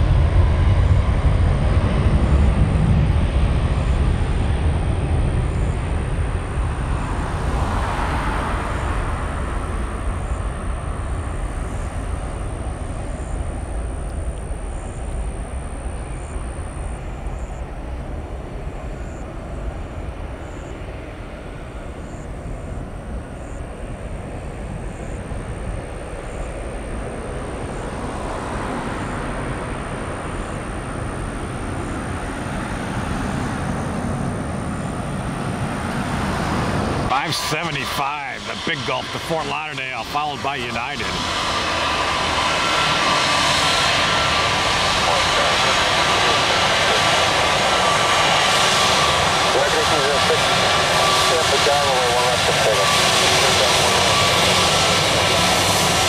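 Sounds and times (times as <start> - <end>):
jet engines rumbling: 0.0 - 56.0.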